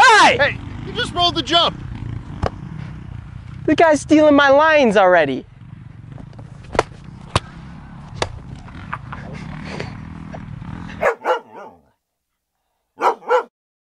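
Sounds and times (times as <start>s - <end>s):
outdoor background noise: 0.0s - 13.5s
dog barking: 10.9s - 11.9s, 13.0s - 13.5s.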